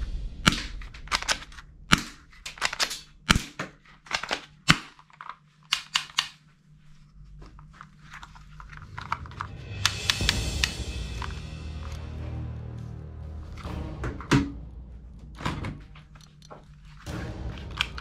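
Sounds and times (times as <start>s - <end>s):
plastic toy guns clacking: 0.5s - 6.4s, 17.6s - 18.0s.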